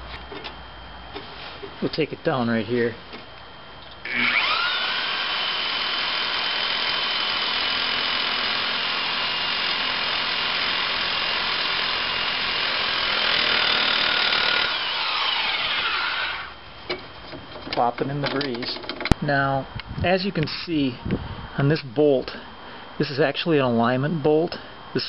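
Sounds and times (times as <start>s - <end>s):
reciprocating saw cutting steel: 4.1s - 16.6s.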